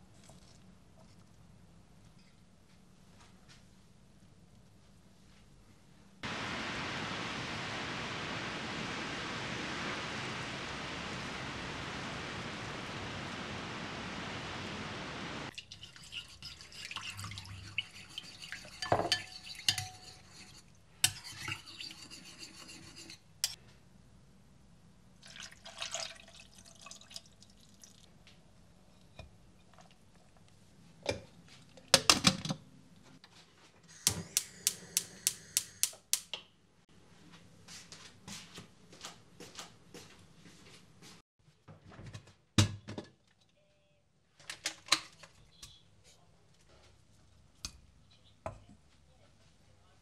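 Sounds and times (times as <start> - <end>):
metal spoon scraping ceramic bowl: 15.6 - 23.6
sauce pouring into pot: 25.2 - 28.1
sharp clicks: 34.0 - 36.4.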